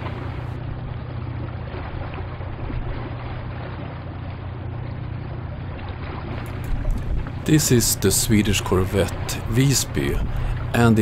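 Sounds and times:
ship engines droning: 0.0 - 11.0
water wash: 6.1 - 11.0.

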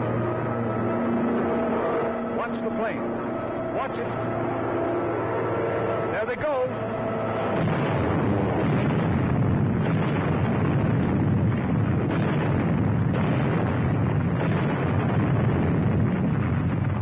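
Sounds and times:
bombs exploding deep rumble: 7.4 - 17.0.

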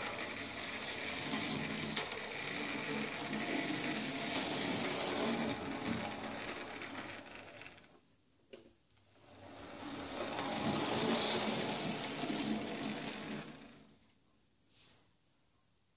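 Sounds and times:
wheels rattling on rails: 0.0 - 7.8, 9.4 - 13.8
model train motor whirring: 0.0 - 7.9, 9.2 - 13.9.

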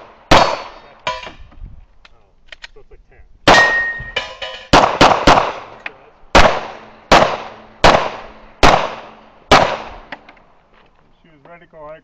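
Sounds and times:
pistol shots with echo: 0.0 - 1.4, 3.5 - 10.1.

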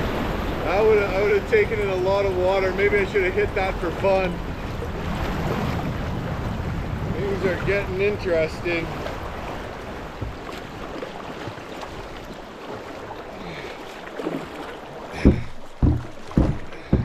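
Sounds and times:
river water rushing: 0.0 - 17.0
loud thumps: 15.2 - 17.0.

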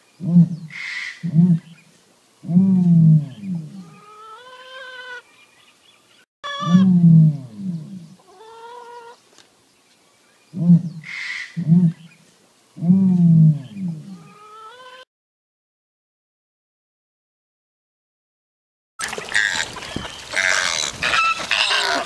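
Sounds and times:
ostrich booming calls: 6.5 - 8.1.

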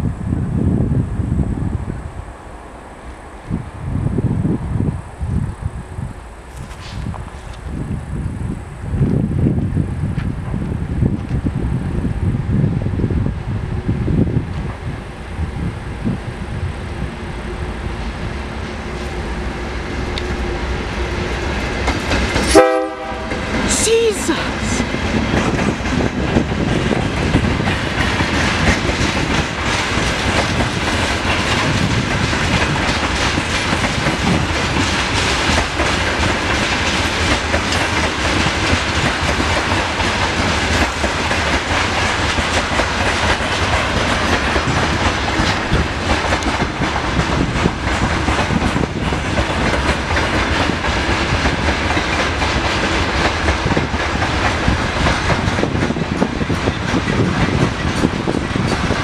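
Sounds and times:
train wheels rumbling on rail: 0.0 - 59.0
wheels clacking over rail joints: 18.4 - 23.7, 24.8 - 59.0.

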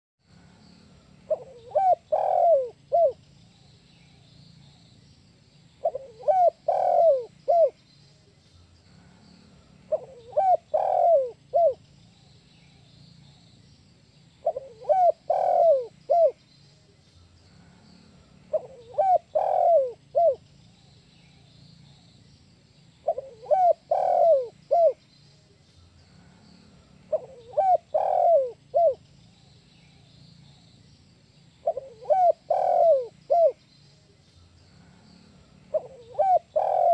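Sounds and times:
dove cooing: 1.3 - 3.2, 5.8 - 7.8, 9.9 - 11.8, 14.4 - 16.4, 18.5 - 20.4, 23.0 - 25.0, 27.1 - 29.0, 31.6 - 33.6, 35.7 - 36.9.

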